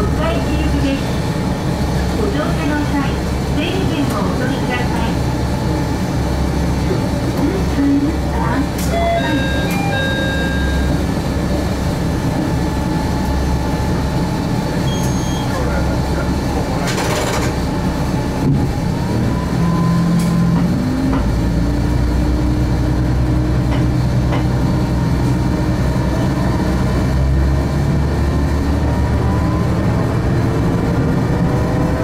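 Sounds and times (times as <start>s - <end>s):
diesel railcar engine rumble: 0.0s - 32.0s
rising whining tone: 8.9s - 11.2s.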